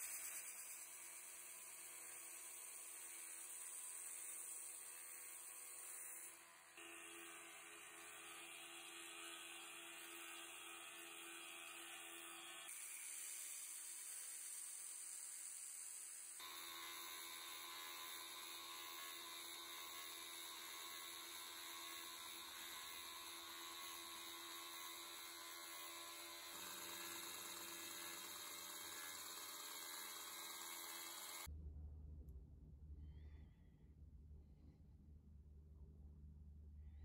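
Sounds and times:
belt grinder hissing: 0:00.0 - 0:31.5
faint low hum: 0:31.5 - 0:37.0.

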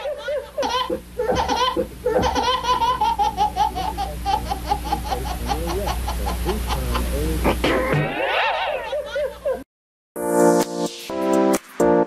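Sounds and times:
high-pitched laughter: 0:00.0 - 0:09.6.

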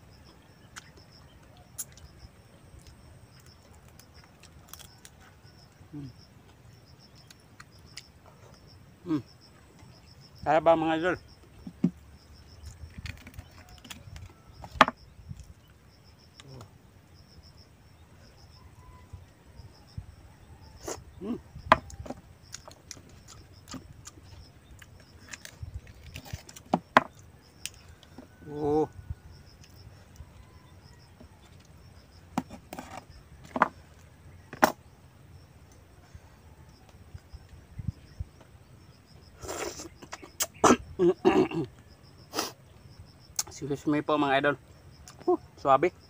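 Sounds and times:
insects chirping: 0:00.0 - 0:46.0
shellfish shell cracking: 0:03.7 - 0:05.3, 0:12.6 - 0:14.3.

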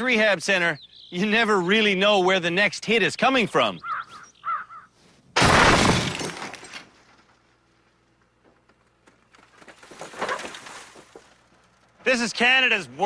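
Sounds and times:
metal crash and shattering glass: 0:05.4 - 0:06.8.

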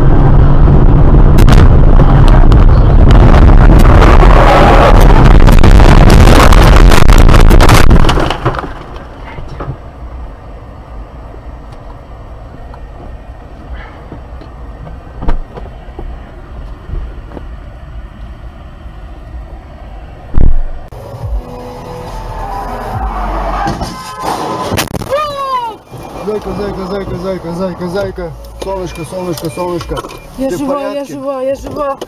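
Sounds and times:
low rumble: 0:00.0 - 0:23.8
car crashing into brush: 0:07.6 - 0:09.2
loud thump: 0:20.3 - 0:20.8.

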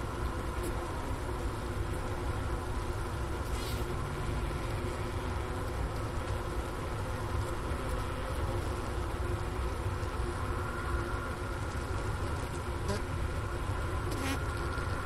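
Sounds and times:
bees humming in hive: 0:12.5 - 0:13.2, 0:13.8 - 0:15.0.

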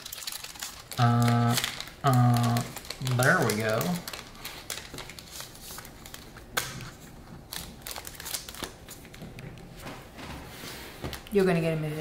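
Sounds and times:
wrapper crinkles: 0:00.0 - 0:09.4.

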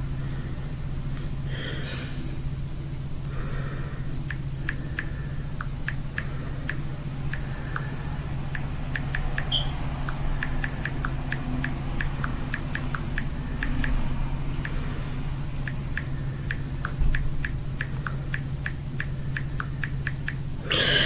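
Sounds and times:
steady low hum: 0:00.0 - 0:21.0
light clicks and taps: 0:04.2 - 0:07.9, 0:15.6 - 0:20.5.

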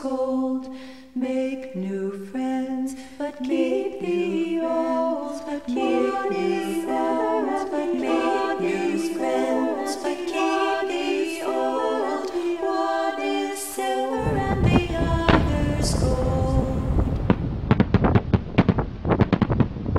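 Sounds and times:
voices singing in harmony: 0:00.0 - 0:17.2
fireworks bangs: 0:17.0 - 0:19.9.

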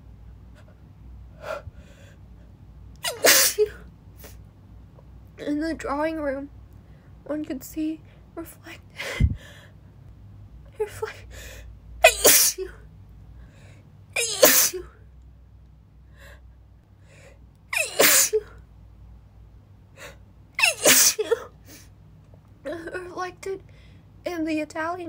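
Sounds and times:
woman sneezing: 0:03.0 - 0:04.4, 0:12.0 - 0:12.8, 0:14.2 - 0:14.9, 0:17.7 - 0:18.5, 0:20.6 - 0:21.5.

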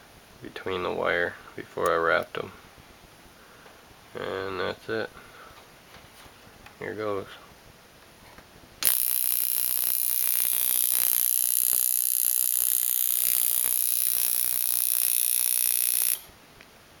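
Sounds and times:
tattoo machine buzzing: 0:08.8 - 0:16.3.

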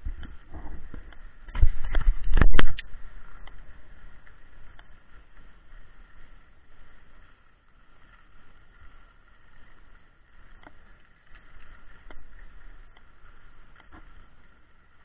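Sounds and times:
low rumble: 0:00.0 - 0:07.0.

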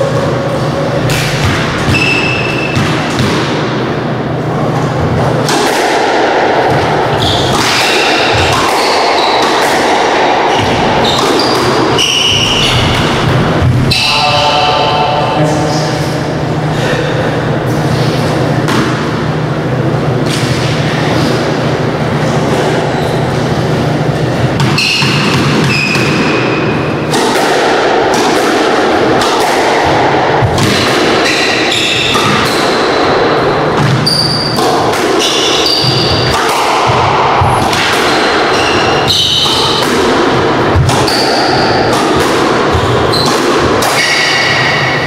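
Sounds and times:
squash ball smacking walls: 0:00.1 - 0:14.1, 0:23.4 - 0:45.0.

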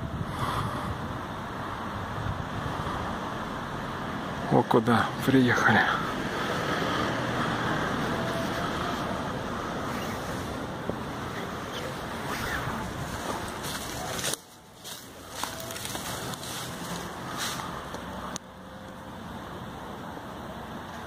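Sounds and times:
wind noise from moving vehicle: 0:00.0 - 0:14.6
road noise: 0:00.0 - 0:21.0.

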